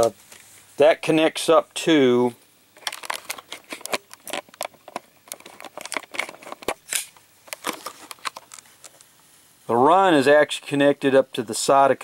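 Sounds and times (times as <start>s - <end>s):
camera handling clicks and rustles: 2.8s - 9.1s.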